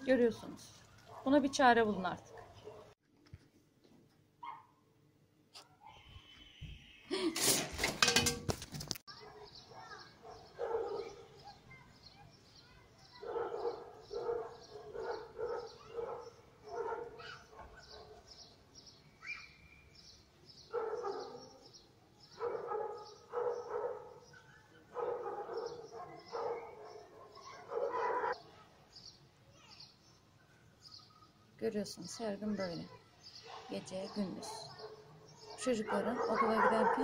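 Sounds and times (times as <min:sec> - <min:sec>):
dogs barking: 0:02.2 - 0:03.0, 0:09.1 - 0:11.6, 0:13.2 - 0:18.3, 0:20.7 - 0:21.7, 0:22.4 - 0:28.4, 0:33.4 - 0:37.0
faint high chirping: 0:09.1 - 0:31.5.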